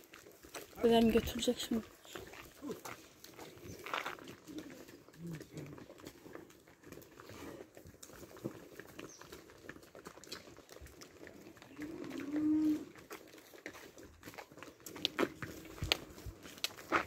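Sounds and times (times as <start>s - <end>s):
farm animal low call: 2.1s - 7.8s, 11.1s - 13.3s.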